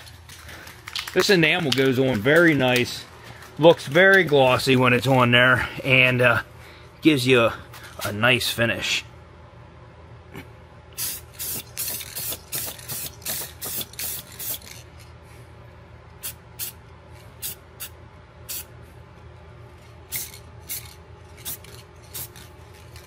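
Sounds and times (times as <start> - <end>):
steady low hum: 0.0 - 23.0
spray can hissing: 11.0 - 14.8, 16.2 - 16.8, 17.4 - 18.7, 20.1 - 22.4.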